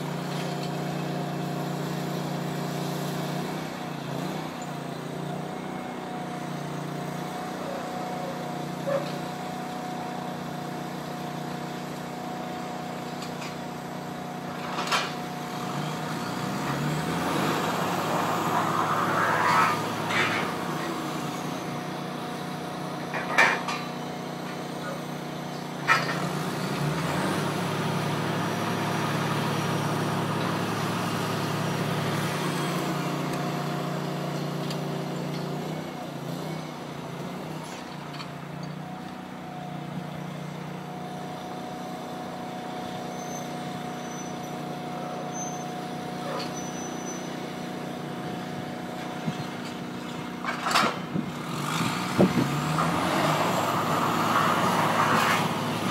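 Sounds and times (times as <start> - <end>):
diesel engine running under load: 0.0 - 55.9.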